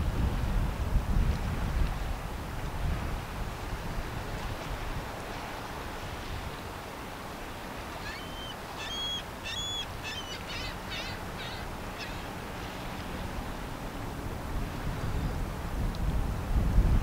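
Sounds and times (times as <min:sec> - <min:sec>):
wind noise: 0:00.0 - 0:08.2, 0:10.8 - 0:17.0
small songbird singing: 0:08.0 - 0:12.2.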